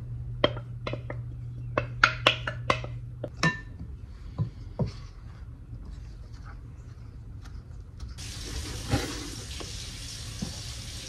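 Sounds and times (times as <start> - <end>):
low hum: 0.0 - 8.8.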